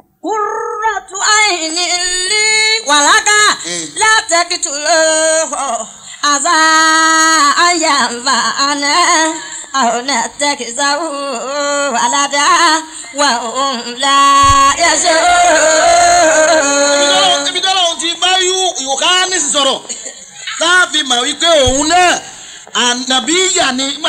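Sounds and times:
person singing ornamented chant: 0:00.3 - 0:17.7.

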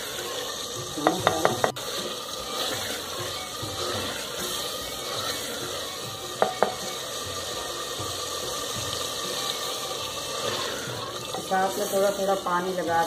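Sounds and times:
curry sizzling in pot: 0:00.0 - 0:13.0
wooden spoon knocking clay pot: 0:00.9 - 0:01.8, 0:06.4 - 0:06.9.

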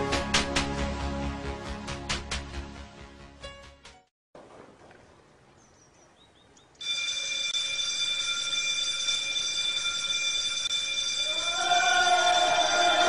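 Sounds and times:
bells ringing: 0:06.8 - 0:13.0.

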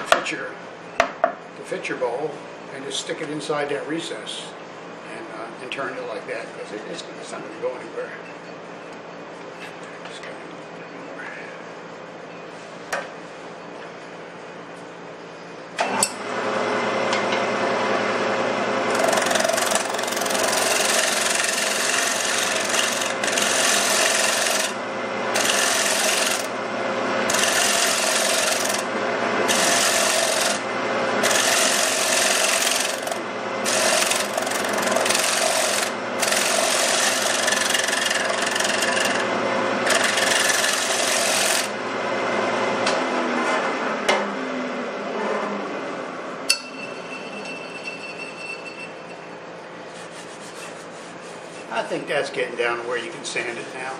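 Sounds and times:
wood lathe humming: 0:18.0 - 0:26.6, 0:27.2 - 0:41.8
gouge scraping spinning wood: 0:18.9 - 0:26.6, 0:27.3 - 0:41.8, 0:50.0 - 0:51.9.

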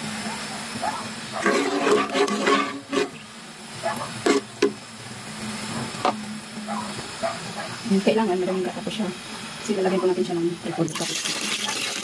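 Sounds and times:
pot heating on stove hum: 0:00.0 - 0:12.0
faint hiss: 0:02.8 - 0:12.0.

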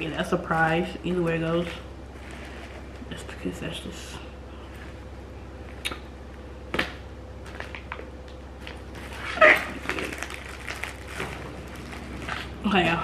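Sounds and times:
plastic crinkling: 0:08.6 - 0:13.0.

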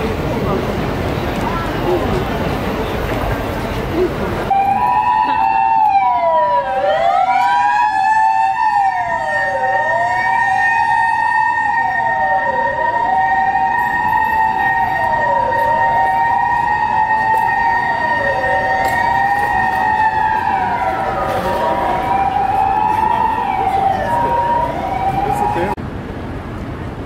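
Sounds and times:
two-tone siren: 0:04.5 - 0:25.8
wailing siren: 0:04.5 - 0:25.8.

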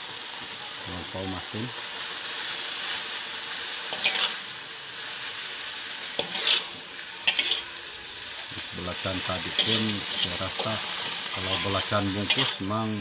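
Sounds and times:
vegetables sizzling in oil: 0:00.0 - 0:13.0
metal spatula scraping wok: 0:02.7 - 0:12.8.

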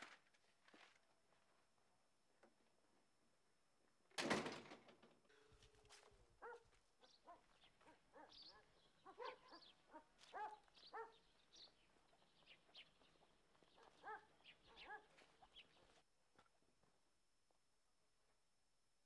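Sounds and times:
faint dog barking and yelping: 0:05.9 - 0:11.7, 0:13.6 - 0:16.0.

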